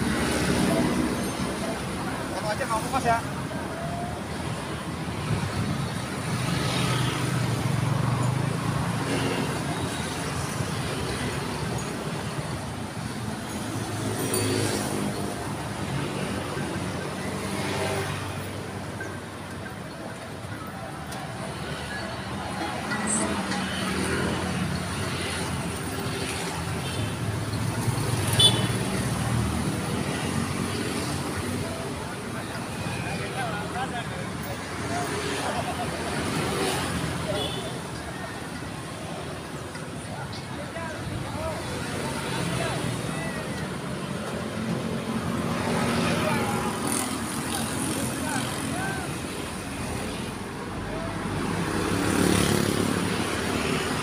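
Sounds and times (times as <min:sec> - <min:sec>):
car engines passing: 0:38.6 - 0:54.0
motorcycle engines passing: 0:40.8 - 0:50.3.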